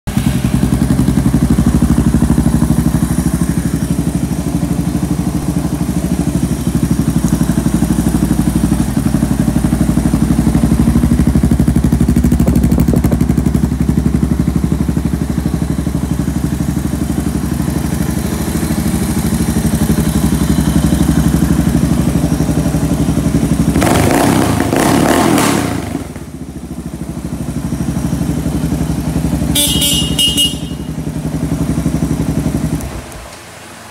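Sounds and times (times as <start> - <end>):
motorcycle engine idling: 0.1 - 33.9
motorcycle horn: 28.8 - 31.6.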